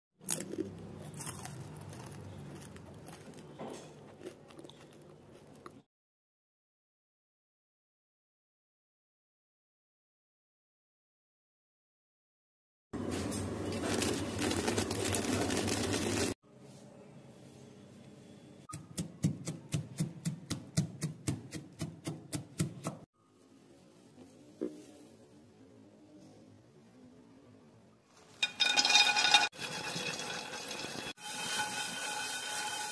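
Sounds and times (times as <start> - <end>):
crunchy chewing: 0.2 - 5.8
pestle pounding in mortar: 18.7 - 23.0.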